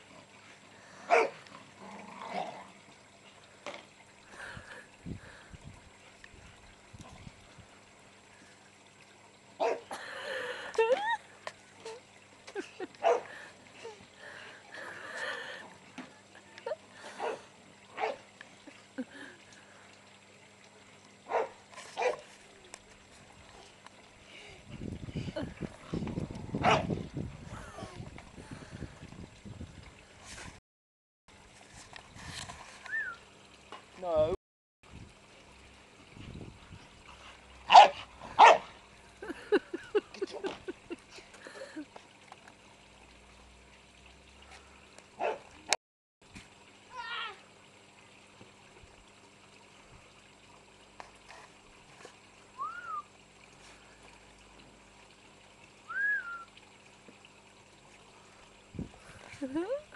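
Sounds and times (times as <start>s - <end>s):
dog barking: 1.1s - 1.4s, 9.6s - 9.9s, 13.0s - 13.3s, 21.3s - 22.2s, 26.6s - 26.9s, 37.7s - 38.7s, 45.2s - 45.5s.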